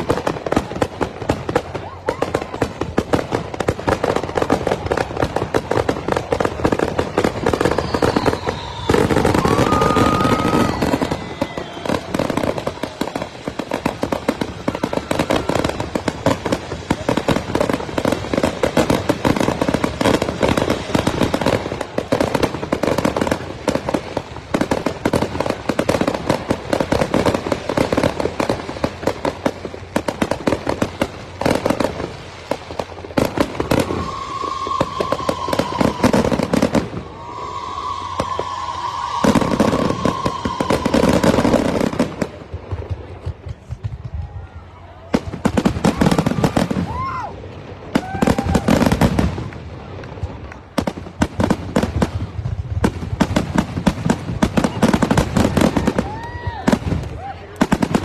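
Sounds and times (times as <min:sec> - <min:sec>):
fireworks bangs and crackles: 0:00.0 - 0:58.0
firework shell whistle: 0:07.2 - 0:15.9, 0:33.6 - 0:42.0.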